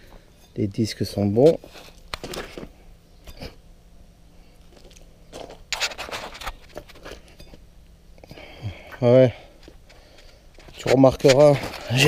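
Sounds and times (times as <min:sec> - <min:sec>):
footsteps on gravel: 0:04.8 - 0:07.3.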